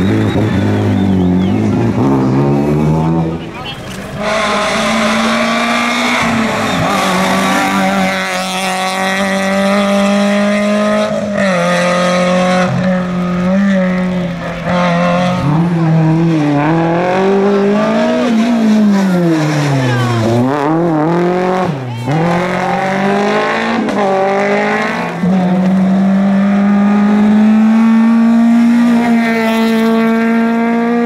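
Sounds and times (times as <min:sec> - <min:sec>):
rally car engine revving: 0:00.0 - 0:31.0.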